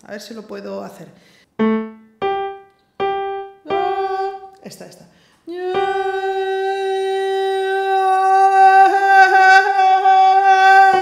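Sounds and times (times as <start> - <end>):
woman singing a held note: 3.6 - 4.6.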